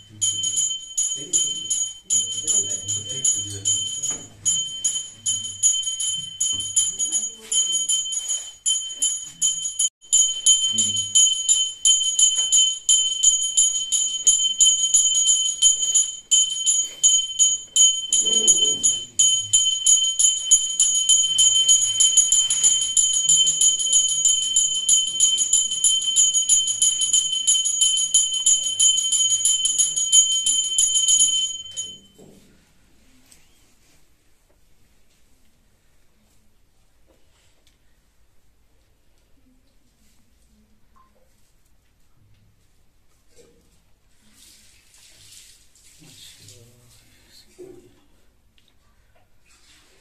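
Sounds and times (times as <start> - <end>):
hand bell ringing rapidly: 0.0 - 32.1.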